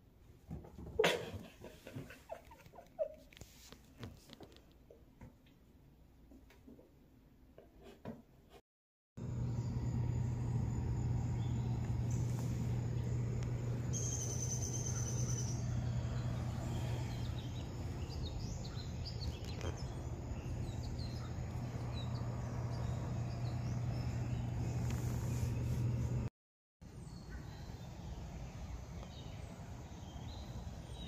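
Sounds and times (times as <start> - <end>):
birds chirping: 9.2 - 26.0
steady low hum: 9.2 - 26.3.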